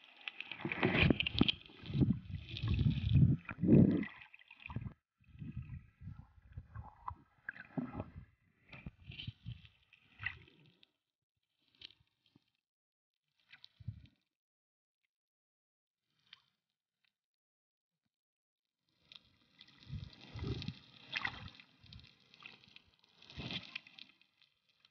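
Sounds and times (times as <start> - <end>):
water sloshing underwater: 0.0 - 10.9, 19.0 - 24.9.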